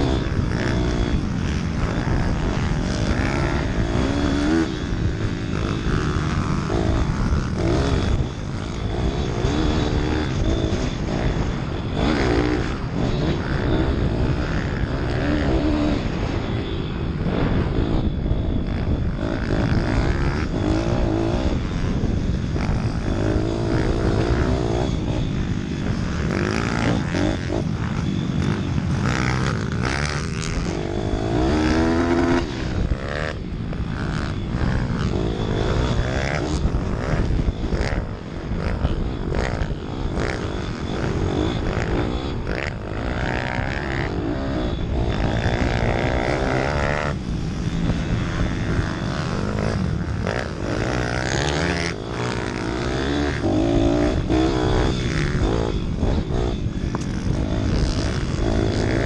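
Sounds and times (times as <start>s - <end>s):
minibike engine revving: 0.0s - 59.0s.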